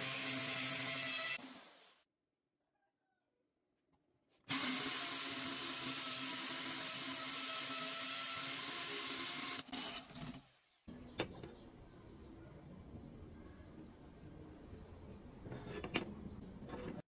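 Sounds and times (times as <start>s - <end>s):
drill cutting steel: 0.0s - 2.0s, 4.5s - 10.8s.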